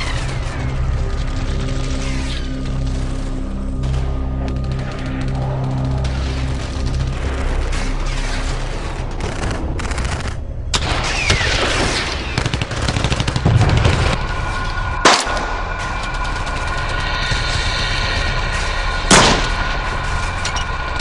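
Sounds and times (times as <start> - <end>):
rapid gunfire: 0.0 - 14.3
music: 0.0 - 21.0.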